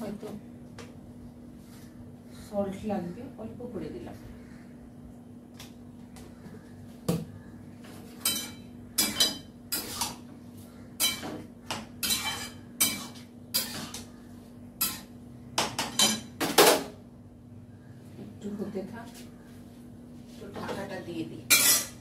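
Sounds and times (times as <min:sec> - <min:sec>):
spatula scraping a steel pan: 0:08.2 - 0:10.2, 0:12.0 - 0:14.0.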